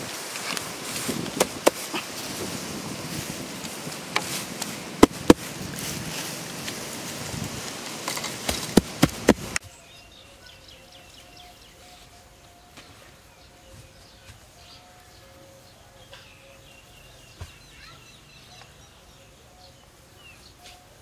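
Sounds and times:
clods and pebbles clicking: 0.0 - 9.6
dry soil scooped by hand: 0.0 - 9.7.

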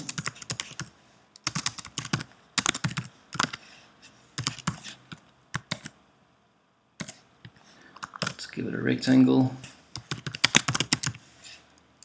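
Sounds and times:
computer keyboard typing: 0.0 - 3.6, 4.4 - 6.0, 7.0 - 7.2, 8.0 - 8.4, 9.9 - 11.2.

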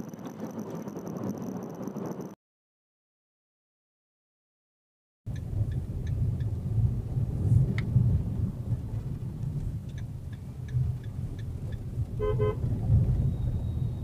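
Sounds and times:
car engine and road rumble: 0.0 - 2.4, 5.3 - 14.0
faint clicks: 5.3 - 6.6, 9.0 - 12.2
vehicle horn beeps: 12.2 - 14.0.

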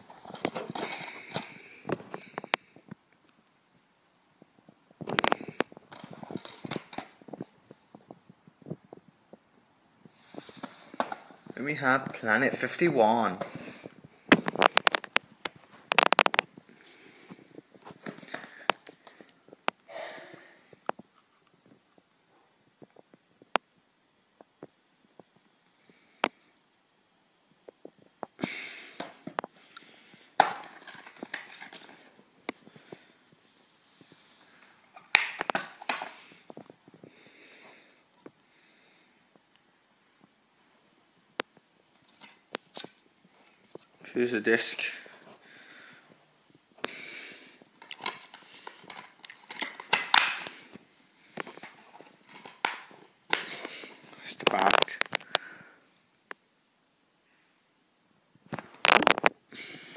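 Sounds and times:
rustling and scraping: 0.0 - 3.0, 4.6 - 9.4, 10.0 - 19.8, 28.9 - 38.4, 41.8 - 55.3
plastic case clicking and rattling: 14.3 - 15.2, 15.9 - 16.5, 30.4 - 32.1, 35.0 - 36.2, 47.8 - 50.6, 51.4 - 53.7
plastic case clack: 30.4 - 32.0, 35.0 - 36.2
plastic case snapping open: 35.0 - 36.2, 47.8 - 50.7.

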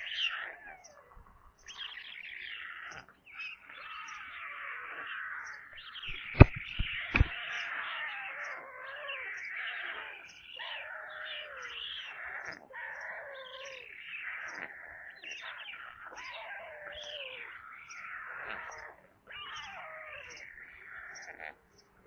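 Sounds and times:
young storks mewing begging calls: 0.0 - 21.9
sharp knock: 6.1 - 7.4.

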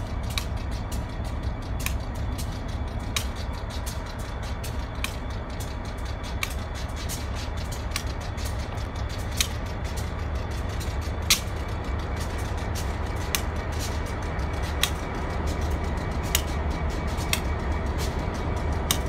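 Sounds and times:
diesel locomotive idling: 0.0 - 19.0.

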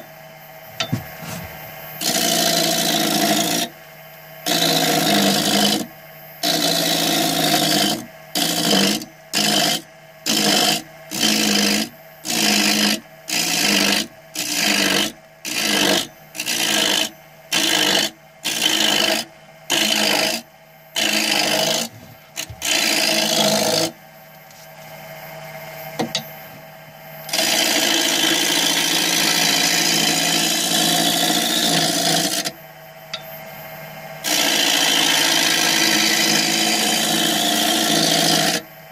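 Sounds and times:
lathe humming: 0.8 - 3.8, 4.4 - 24.8, 27.3 - 33.4, 34.2 - 38.6
lathe tool cutting wood: 2.0 - 3.7, 4.4 - 24.0, 27.3 - 32.5, 34.2 - 38.6.

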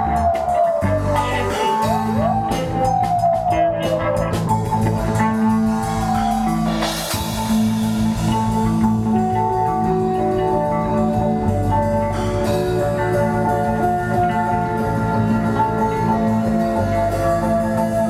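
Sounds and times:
live rock band playing: 0.0 - 18.0
sliding guitar lead line: 0.0 - 18.0
cymbal crash: 5.7 - 9.2.

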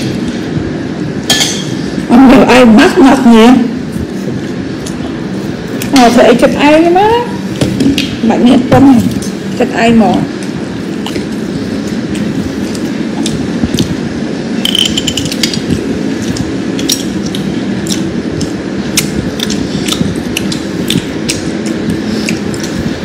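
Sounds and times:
low rumbling noise: 0.0 - 23.0
eating clicks and smacks: 10.4 - 11.3, 12.1 - 14.0, 14.8 - 22.8.

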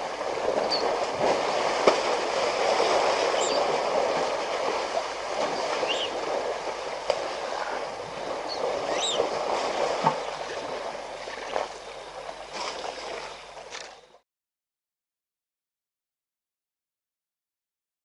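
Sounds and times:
water sloshing and splashing: 0.0 - 14.2.

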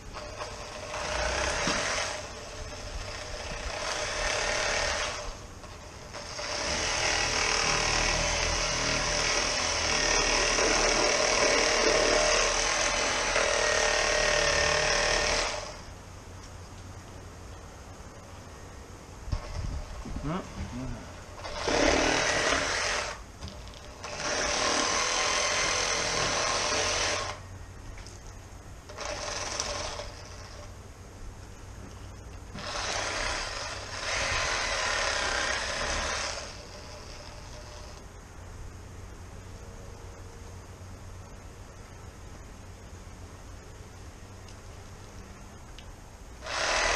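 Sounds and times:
electric knife buzzing: 0.1 - 15.9, 20.2 - 27.4, 28.9 - 30.8, 32.5 - 38.0, 46.4 - 46.9.

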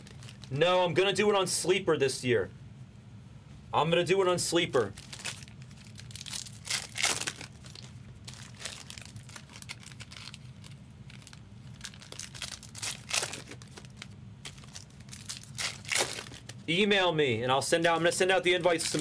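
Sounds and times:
foil wrappers crinkling and tearing: 0.0 - 0.6, 4.8 - 16.6, 18.0 - 19.0
low steady hum: 0.0 - 19.0.

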